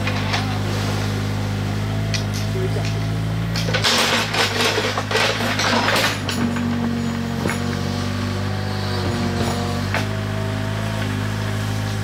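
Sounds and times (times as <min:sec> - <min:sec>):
excavator diesel engine running: 0:00.0 - 0:12.0
clattering scraping: 0:03.5 - 0:07.7.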